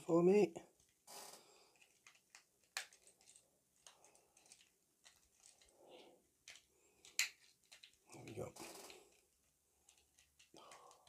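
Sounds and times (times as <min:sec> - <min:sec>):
plastic parts clicking: 0:00.8 - 0:05.8, 0:06.4 - 0:11.0.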